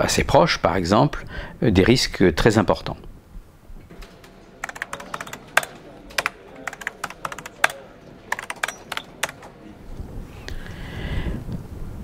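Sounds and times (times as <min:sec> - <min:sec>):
keyboard typing clicks: 0:04.0 - 0:09.5.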